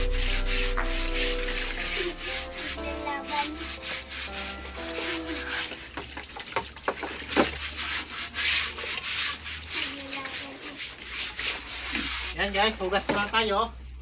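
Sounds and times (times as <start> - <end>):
scrubbing a mattress by hand: 0.0 - 6.0, 7.2 - 13.0
tune playing: 0.0 - 6.4.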